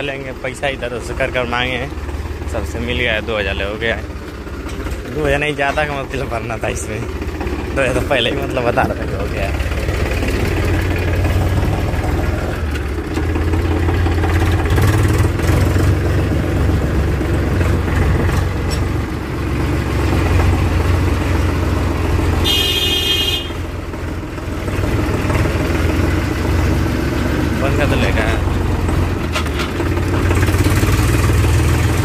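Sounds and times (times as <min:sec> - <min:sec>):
tractor diesel engine running: 0:00.0 - 0:32.0
horn honking: 0:22.4 - 0:23.7.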